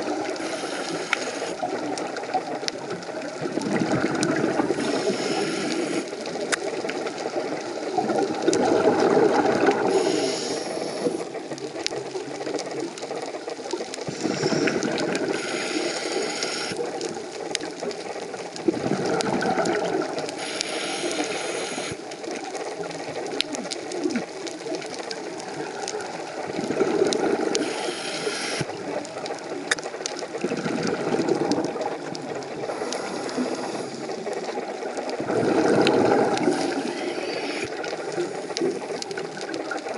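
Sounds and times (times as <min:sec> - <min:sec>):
regulator inhale hiss: 0:00.1 - 0:01.7, 0:04.7 - 0:06.3, 0:09.7 - 0:11.4, 0:14.0 - 0:16.9, 0:20.3 - 0:22.0, 0:27.5 - 0:28.7, 0:32.7 - 0:34.6, 0:36.3 - 0:38.9
exhaled bubbles rushing: 0:01.4 - 0:39.9.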